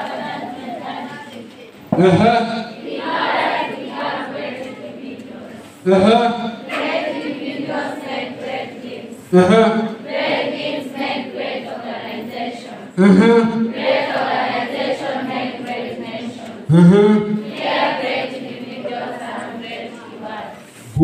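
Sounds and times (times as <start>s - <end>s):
students chanting in a hall: 0.0s - 21.0s
single loud voice: 1.9s - 2.8s, 13.0s - 13.7s, 16.7s - 17.4s.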